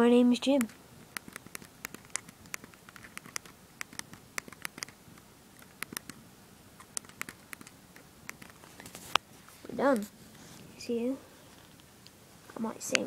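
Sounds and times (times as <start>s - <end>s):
phone keyboard keys clicking: 0.6s - 5.0s, 5.6s - 6.2s, 6.8s - 8.6s.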